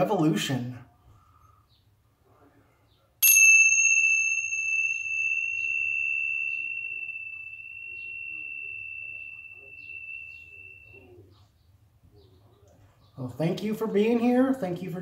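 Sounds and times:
tingsha cymbals ringing: 0:03.2 - 0:11.4.

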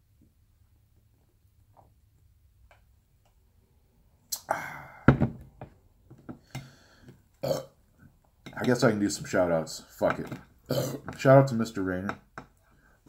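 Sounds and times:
breathy exhale: 0:04.4 - 0:05.1, 0:06.4 - 0:07.1
glass bottle knocking on table: 0:05.1 - 0:05.7.

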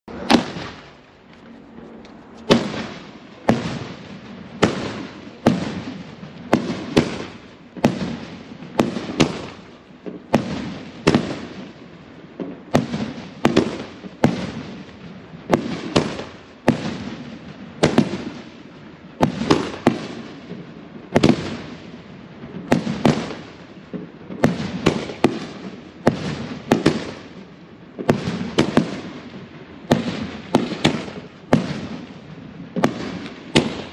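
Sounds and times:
firework launch reports: 0:00.1 - 0:11.5.

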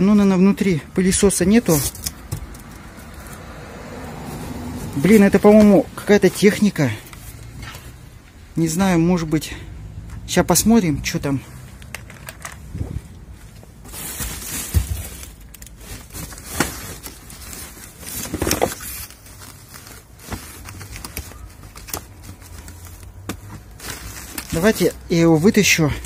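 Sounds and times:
rummaging through cardboard box: 0:01.5 - 0:03.4, 0:13.0 - 0:25.9.

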